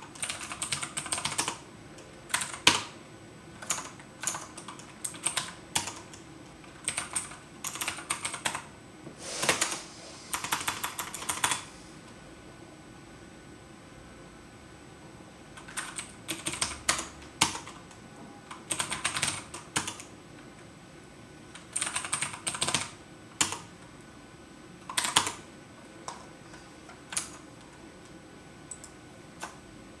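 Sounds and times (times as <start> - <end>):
computer keyboard typing: 0.0 - 1.6, 2.3 - 3.0, 3.6 - 8.7, 9.4 - 11.7, 15.6 - 20.1, 21.5 - 23.7, 24.8 - 26.2, 27.0 - 27.8, 28.7 - 29.6.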